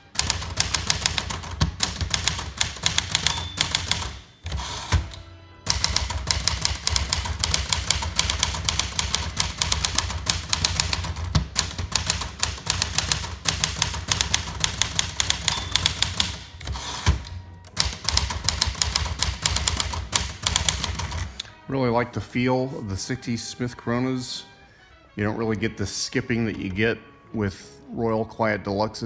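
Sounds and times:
typewriter key clacks: 0.2s - 5.1s, 5.7s - 21.3s.

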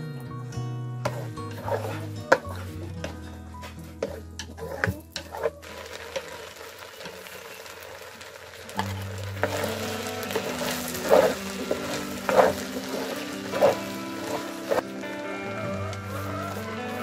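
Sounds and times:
simmering pot hiss: 5.4s - 17.0s.

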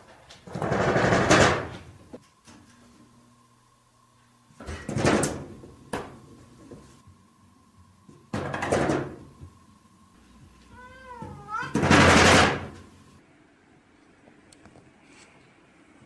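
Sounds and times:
cat meowing: 10.7s - 12.0s.

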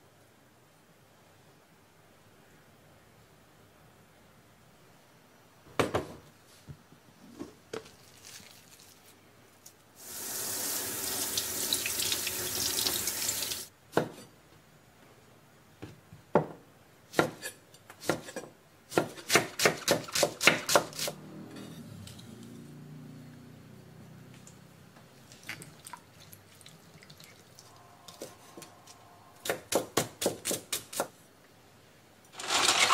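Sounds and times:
kitchen tap running: 10.0s - 13.7s.

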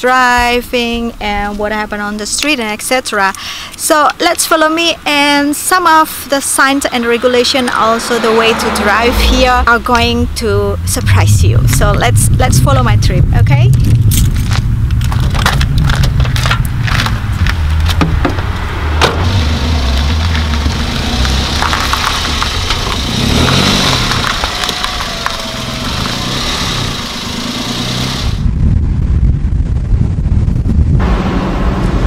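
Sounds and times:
low rumble: 6.8s - 32.0s
footsteps on gravel: 13.8s - 18.6s, 19.4s - 26.4s
car door clicks and knocks: 17.8s - 19.2s.

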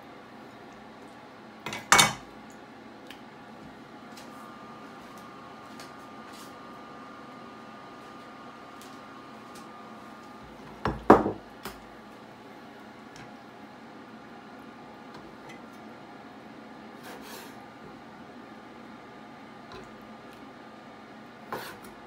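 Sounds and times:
faint room hum: 0.0s - 22.0s
kitchenware knocking on wood: 10.8s - 11.4s.

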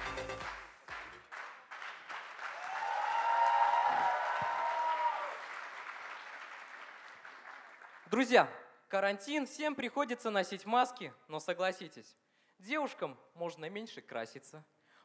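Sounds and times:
audience applauding: 0.0s - 8.1s
cheering: 2.1s - 7.0s.

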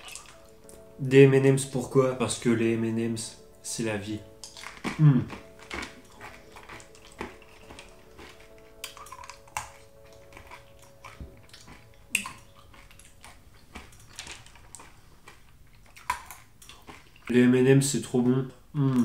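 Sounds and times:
candies clicking on table: 4.3s - 17.2s
candies crunched in mouth: 4.4s - 17.3s.

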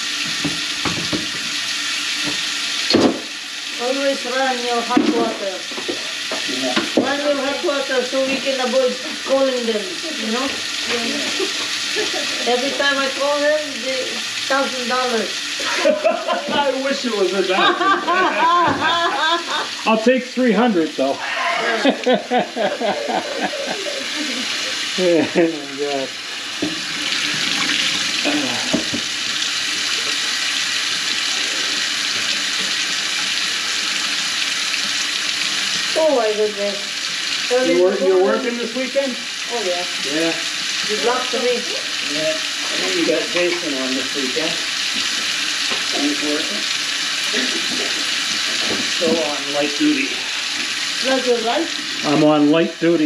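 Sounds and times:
hands rinsing under water: 0.0s - 20.0s, 20.9s - 37.8s, 38.4s - 52.3s
faucet running into steel sink: 0.0s - 53.0s
people talking: 3.8s - 5.6s, 6.4s - 26.1s, 28.2s - 28.8s, 36.0s - 36.8s, 37.5s - 44.6s, 45.9s - 46.6s, 47.3s - 48.0s, 49.0s - 50.2s, 51.0s - 53.0s.

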